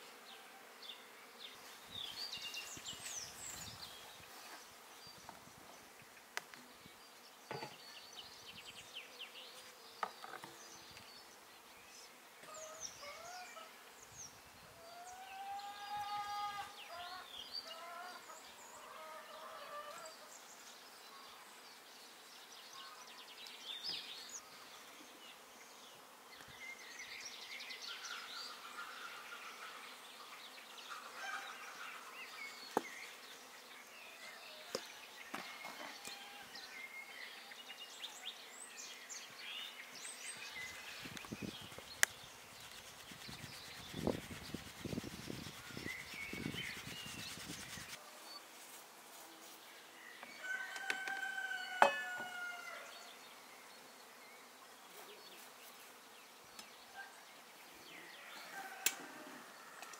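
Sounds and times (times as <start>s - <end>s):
faint outdoor ambience: 0.0s - 59.9s
birds chirping: 26.4s - 48.0s.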